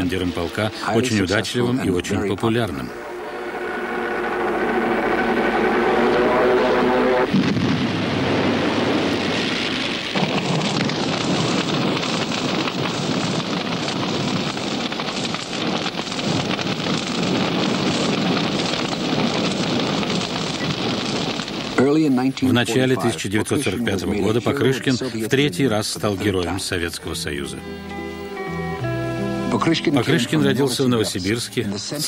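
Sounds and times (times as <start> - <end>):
aircraft engine drone: 0.0 - 22.4
loud rushing noise with crackle: 3.5 - 22.9.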